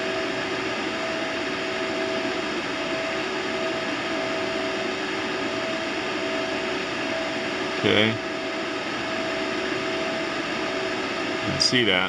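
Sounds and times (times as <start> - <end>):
amplifier rushing hum: 0.0 - 12.0.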